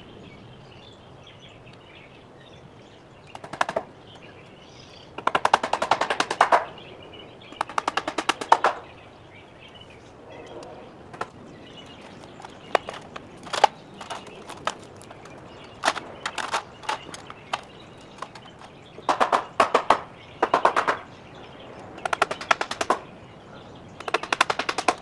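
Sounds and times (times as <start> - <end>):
impact driver rattling: 12.0 - 20.0
sharp knocks: 15.8 - 21.0.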